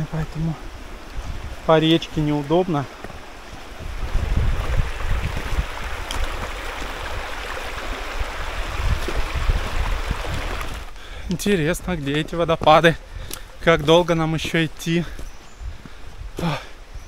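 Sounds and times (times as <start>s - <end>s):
river flowing over stones: 0.0s - 11.7s
wind buffeting microphone: 0.0s - 17.0s.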